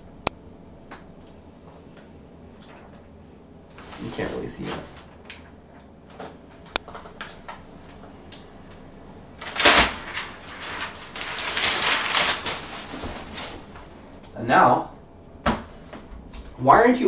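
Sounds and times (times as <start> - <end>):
plastic film crinkling: 9.4 - 13.8.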